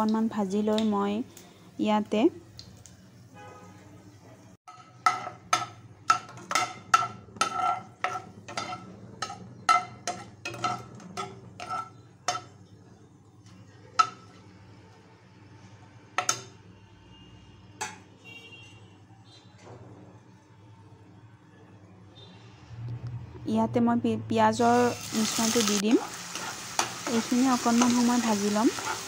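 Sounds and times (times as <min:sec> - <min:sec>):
metal ladle knocking on pan: 0:04.7 - 0:12.5.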